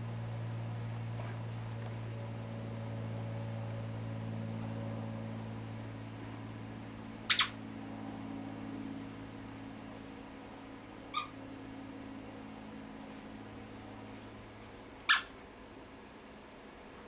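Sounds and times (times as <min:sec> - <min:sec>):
low hum: 0:00.0 - 0:16.3
squeaky dog toy squeaking: 0:07.3 - 0:07.5, 0:11.1 - 0:11.3, 0:15.1 - 0:15.3.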